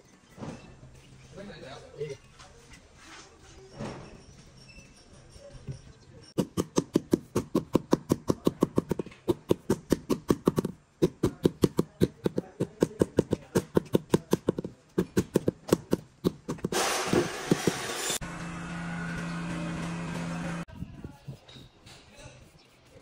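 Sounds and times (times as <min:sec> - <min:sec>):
rubber mallet tapping marble: 0:06.4 - 0:16.8.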